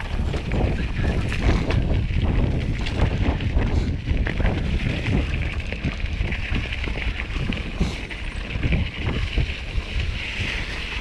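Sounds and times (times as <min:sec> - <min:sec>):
bike knocking and rattling: 0:00.0 - 0:11.0
mountain bike rolling on dirt: 0:00.0 - 0:11.0
wind buffeting microphone: 0:00.0 - 0:11.0.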